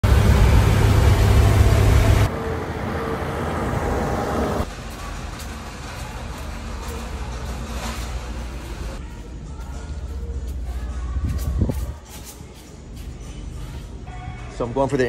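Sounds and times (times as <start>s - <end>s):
truck engine running: 0.0s - 9.0s.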